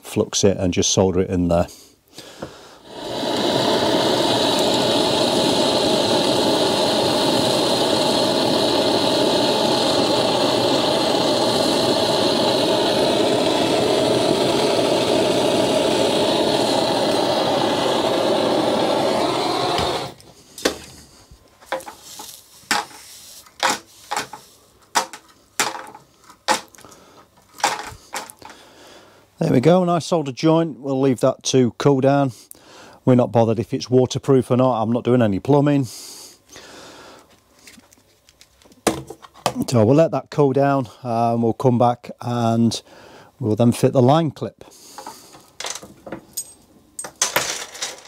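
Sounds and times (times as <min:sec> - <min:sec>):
motor-driven wire wheel running: 0:02.9 - 0:20.2
parts clicking and knocking: 0:21.6 - 0:28.6.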